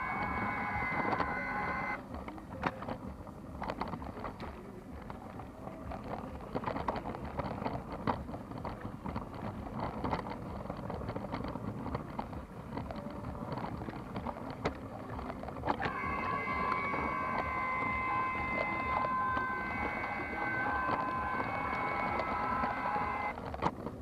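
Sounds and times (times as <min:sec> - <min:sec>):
steady high tones: 0:00.0 - 0:02.0, 0:15.9 - 0:23.3
toy train rattling rumble: 0:00.0 - 0:05.2, 0:05.8 - 0:24.0
sharp clicks of train track: 0:05.8 - 0:24.0.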